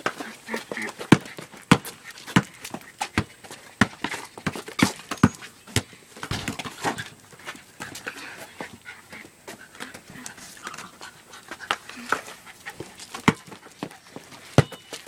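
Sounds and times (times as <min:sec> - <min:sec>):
sharp knocks: 0:06.3 - 0:07.1
dog panting hard: 0:07.0 - 0:14.2.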